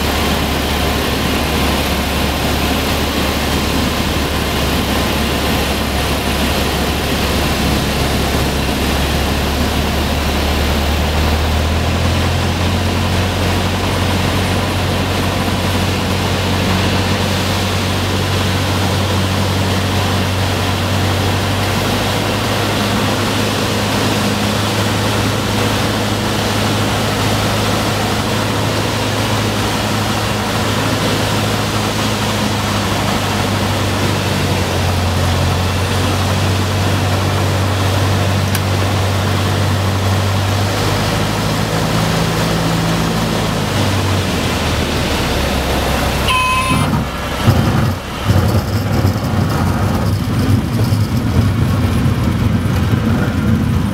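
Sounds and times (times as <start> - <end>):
airflow noise: 0.0 - 48.4
airplane engine and propeller: 0.0 - 53.9.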